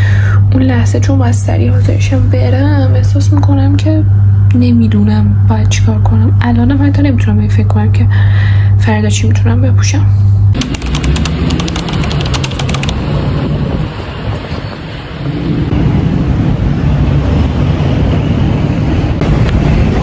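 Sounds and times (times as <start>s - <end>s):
street traffic rumbling: 0.0s - 8.1s, 8.7s - 20.0s
rapid light clicks: 10.6s - 13.0s
wind buffeting microphone: 12.1s - 20.0s.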